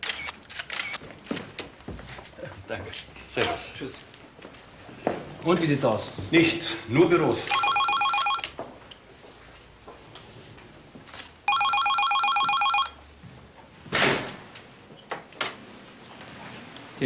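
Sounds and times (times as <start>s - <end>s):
electronic telephone ringing: 7.5s - 8.5s, 11.5s - 13.0s.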